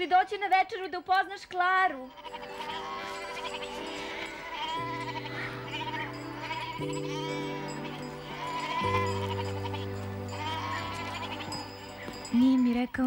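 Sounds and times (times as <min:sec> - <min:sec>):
soft background music: 0:01.7 - 0:13.0
goats bleating: 0:02.1 - 0:12.4.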